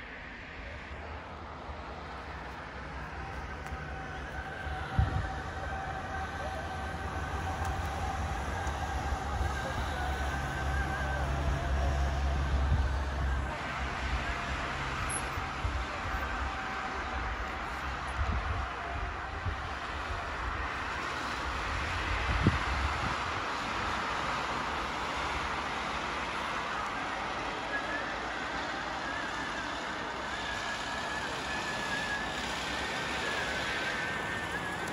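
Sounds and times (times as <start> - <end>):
cars passing: 0.0 - 34.9
wind buffeting microphone: 4.4 - 10.4, 21.9 - 23.4.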